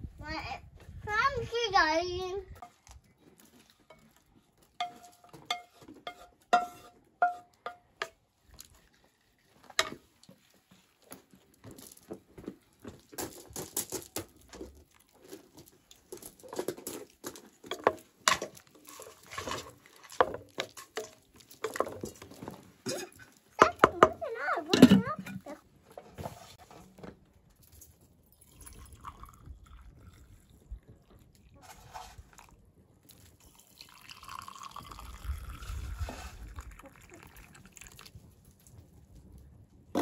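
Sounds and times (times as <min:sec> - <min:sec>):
wooden spoon scraping a pot: 0:04.8 - 0:07.8, 0:17.8 - 0:24.2, 0:24.8 - 0:26.9, 0:31.6 - 0:32.4
wooden spatula tapping metal pan: 0:04.8 - 0:08.2.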